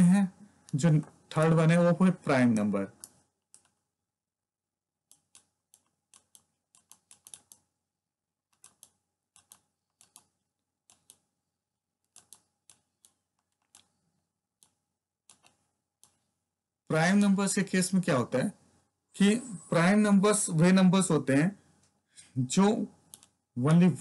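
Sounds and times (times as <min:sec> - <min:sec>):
stylus tapping pen tablet: 0:05.1 - 0:07.7, 0:08.4 - 0:11.3.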